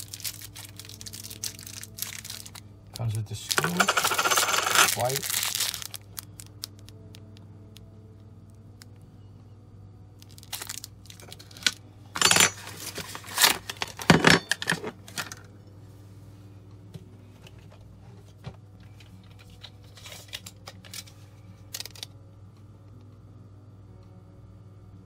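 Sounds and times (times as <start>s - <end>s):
plastic packaging crinkling: 0.0s - 7.3s, 10.2s - 11.8s, 12.6s - 14.7s, 19.2s - 21.1s, 21.7s - 22.1s.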